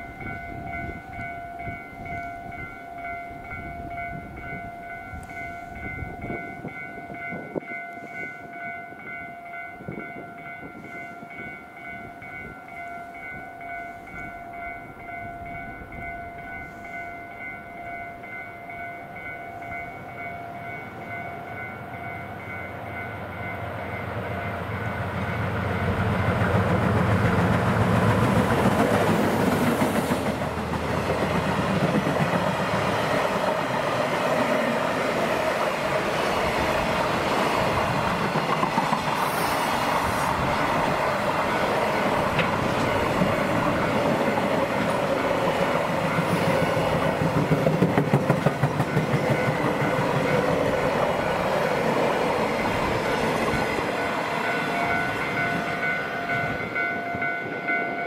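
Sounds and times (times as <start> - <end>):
locomotive engine passing: 19.0 - 58.0.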